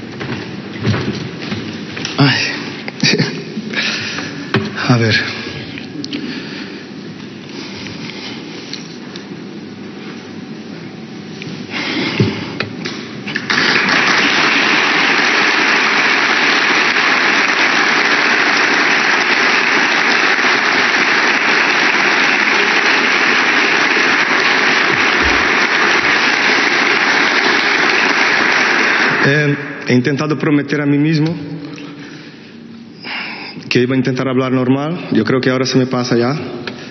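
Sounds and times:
audience applauding: 13.3s - 29.7s.

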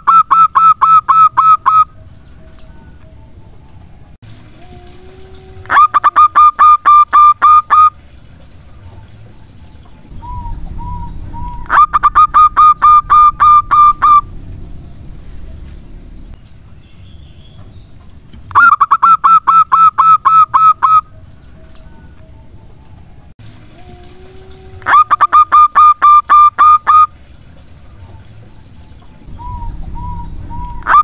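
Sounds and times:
dove cooing: 10.1s - 16.2s, 29.2s - 31.0s.

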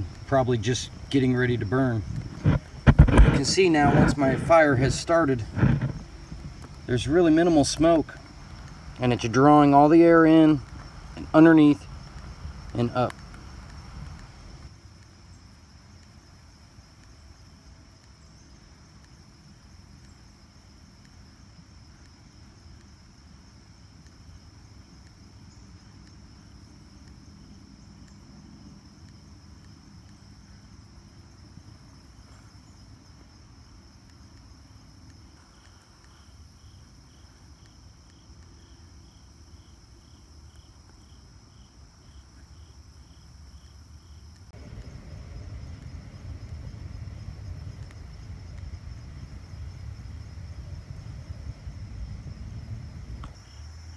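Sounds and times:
insect pulsing chirp: 0.0s - 53.9s
low steady rumble: 44.0s - 53.9s.

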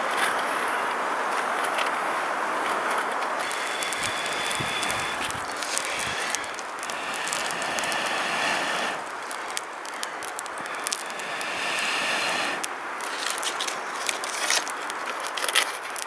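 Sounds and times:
bark crackling and popping: 2.6s - 16.0s
person blowing on embers: 3.1s - 14.7s.

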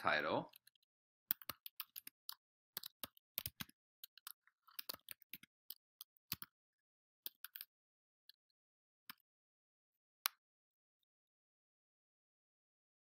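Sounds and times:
computer keyboard typing: 0.5s - 6.6s, 7.2s - 7.7s.

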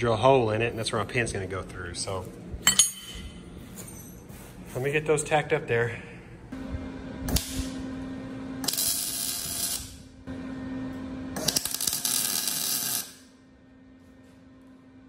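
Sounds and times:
welder low hum: 4.7s - 15.0s
welding arc crackling hiss: 7.3s - 7.8s, 8.6s - 10.1s, 11.4s - 13.3s.

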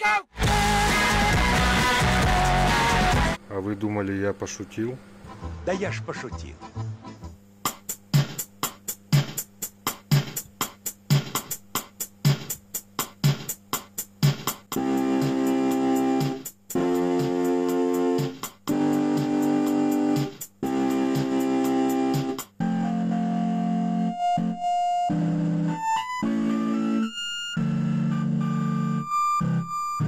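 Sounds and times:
drum machine beat: 7.6s - 22.6s
keyboard chords: 14.7s - 30.0s.

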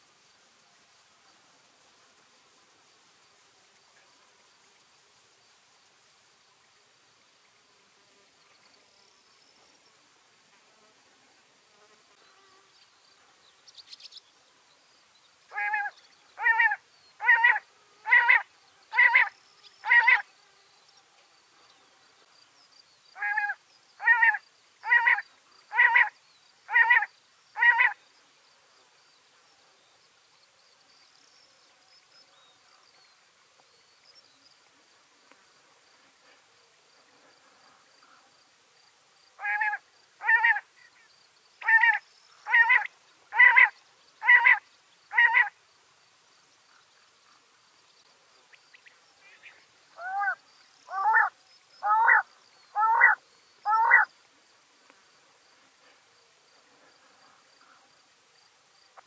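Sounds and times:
quail calling: 15.5s - 20.2s, 23.2s - 26.1s, 26.7s - 28.0s, 39.4s - 40.6s, 41.6s - 45.5s, 50.0s - 54.1s.

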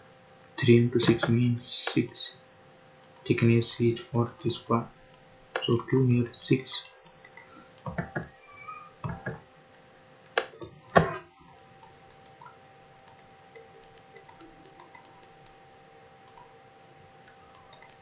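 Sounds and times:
faint steady hum: 0.0s - 18.0s
computer mouse clicks: 6.8s - 8.3s, 10.3s - 11.0s, 11.8s - 15.6s, 16.2s - 16.6s, 17.2s - 18.0s.

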